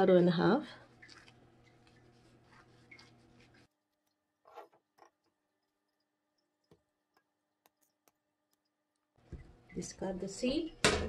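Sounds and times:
knife scraping avocado: 0:01.0 - 0:06.1.

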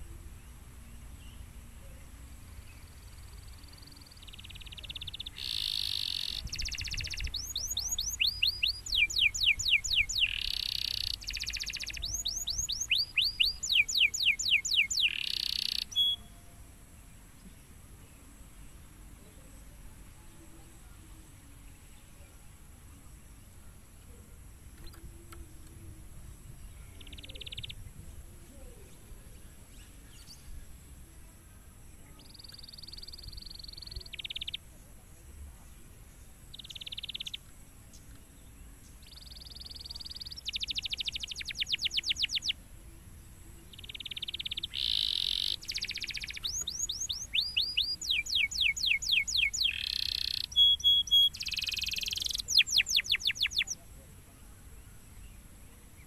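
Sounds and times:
canary singing trills: 0:00.0 - 0:16.6, 0:26.6 - 0:28.0, 0:32.0 - 0:34.8, 0:36.3 - 0:37.5, 0:38.8 - 0:54.0.

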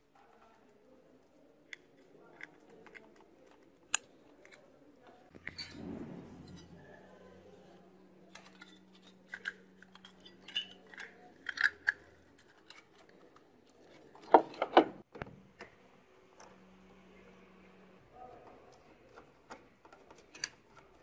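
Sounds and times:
plastic parts clicking and rattling: 0:00.0 - 0:05.9, 0:08.2 - 0:15.8, 0:18.1 - 0:21.0.

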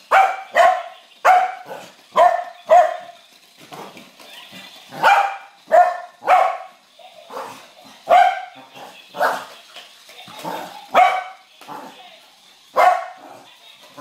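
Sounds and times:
dog barking: 0:00.1 - 0:03.1, 0:05.0 - 0:06.7, 0:08.1 - 0:08.6, 0:10.9 - 0:11.4, 0:12.8 - 0:13.2.

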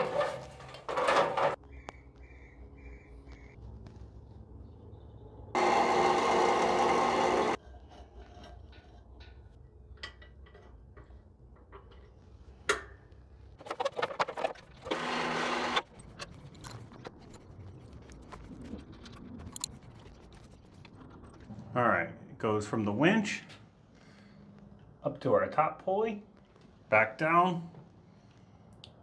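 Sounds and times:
small electric motor running: 0:05.6 - 0:07.6.

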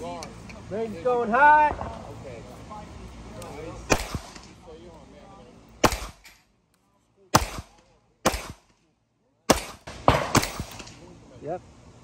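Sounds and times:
pistol shots: 0:03.9 - 0:04.5, 0:05.8 - 0:06.4, 0:07.3 - 0:08.8, 0:09.5 - 0:11.0.

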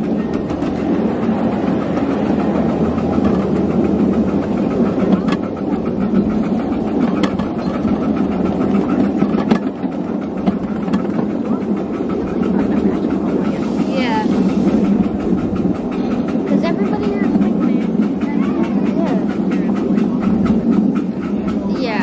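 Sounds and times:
miniature train rumbling: 0:00.0 - 0:22.0.

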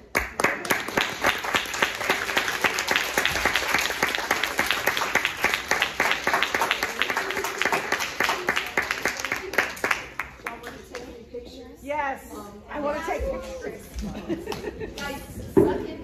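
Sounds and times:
audience applauding: 0:00.0 - 0:10.7.

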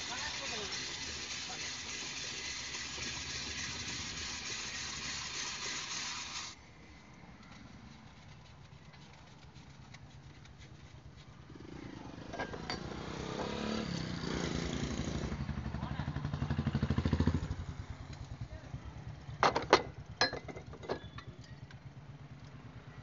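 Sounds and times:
ice shaving machine scraping: 0:00.0 - 0:06.6.

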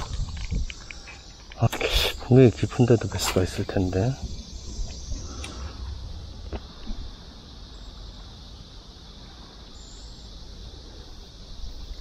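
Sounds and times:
wind buffeting microphone: 0:00.0 - 0:07.6
high-pitched insect chorus: 0:00.0 - 0:12.0.

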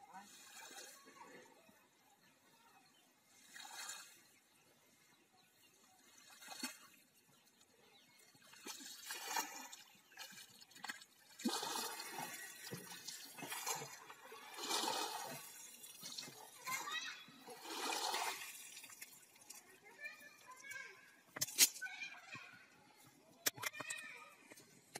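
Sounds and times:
muddy water sloshing and splashing: 0:00.0 - 0:01.7, 0:03.3 - 0:05.0, 0:05.6 - 0:20.7.

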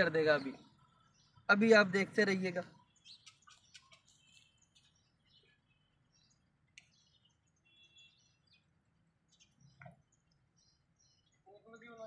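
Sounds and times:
faint bird chirps: 0:02.6 - 0:12.0.

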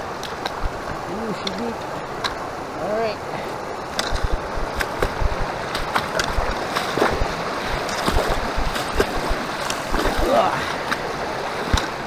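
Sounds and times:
creek water rushing: 0:00.0 - 0:12.0
splashes of wading footsteps: 0:04.0 - 0:12.0.

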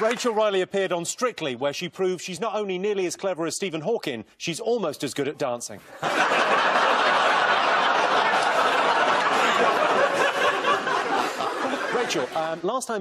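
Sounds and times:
studio audience laughing: 0:05.8 - 0:12.6.

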